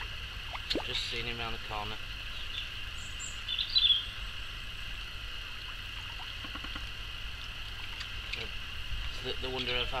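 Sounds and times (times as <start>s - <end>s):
steady hiss: 0.0s - 10.0s
bird chirps: 2.3s - 4.2s.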